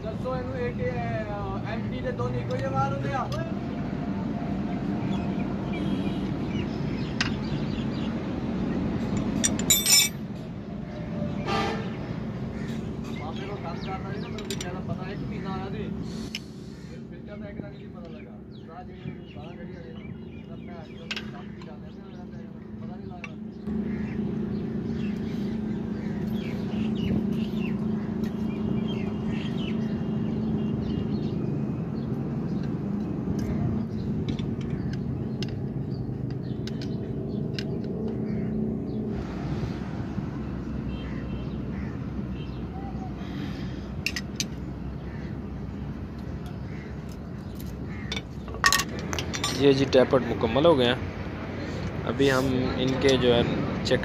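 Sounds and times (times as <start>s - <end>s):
birds chirping: 0.0s - 54.0s
metal tools clinking on engine: 9.0s - 10.3s, 14.3s - 14.9s, 44.0s - 44.6s, 47.6s - 50.1s.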